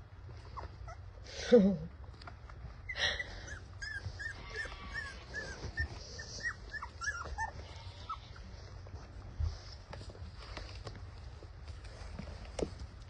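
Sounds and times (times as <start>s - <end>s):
puppies whimpering: 2.8s - 8.7s.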